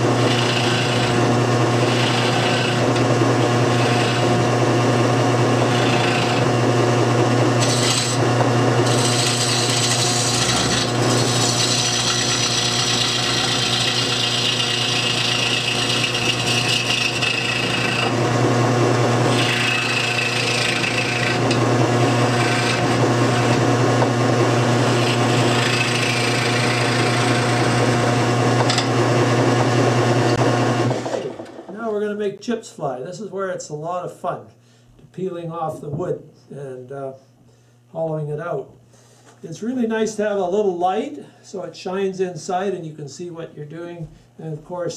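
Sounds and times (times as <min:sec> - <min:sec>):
turning tool scraping wood: 0:00.0 - 0:31.9
wood lathe humming: 0:00.0 - 0:31.9.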